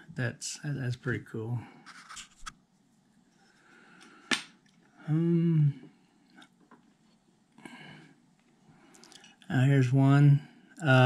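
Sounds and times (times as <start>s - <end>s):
man humming: 5.0s - 5.8s.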